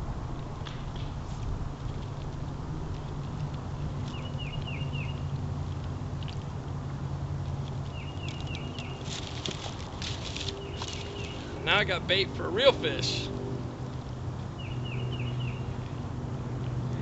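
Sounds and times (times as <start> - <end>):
songbird chirping: 4.0 - 5.4, 7.8 - 16.1.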